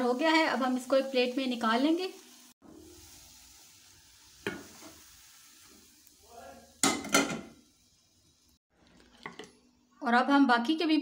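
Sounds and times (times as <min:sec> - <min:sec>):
faint frying hiss: 0:00.0 - 0:11.0
frying pan knocking on plate: 0:06.8 - 0:07.6.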